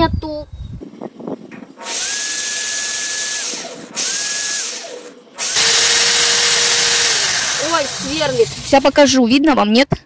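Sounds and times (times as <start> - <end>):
drill whining into metal: 1.8 - 9.2.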